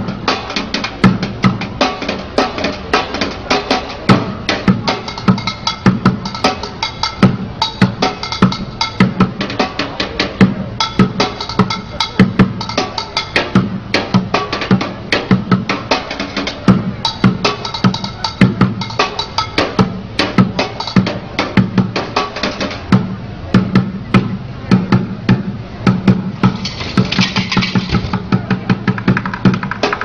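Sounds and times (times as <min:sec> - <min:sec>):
hollow bucket drum thumps: 0:25.3 - 0:30.0
clicking rim hits: 0:26.5 - 0:28.2.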